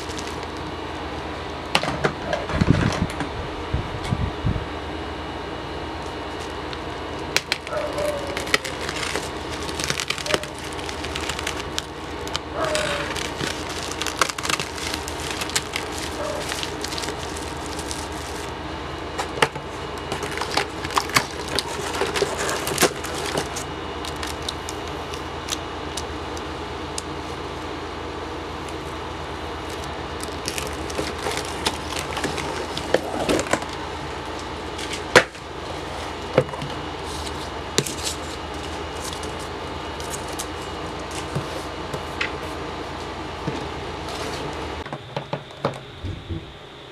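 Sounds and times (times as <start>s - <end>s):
cardboard packaging rustling: 0.0s - 0.8s, 6.0s - 26.1s, 28.6s - 42.6s
plastic mailer crinkling: 0.0s - 0.8s, 5.9s - 27.5s, 28.5s - 42.2s
low background hum: 0.0s - 46.9s.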